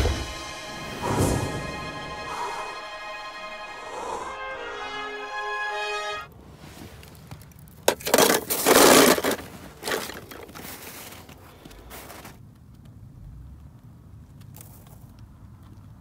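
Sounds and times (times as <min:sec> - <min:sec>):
orchestral film music: 0:00.0 - 0:06.3
footsteps crunching through snow: 0:08.7 - 0:12.4.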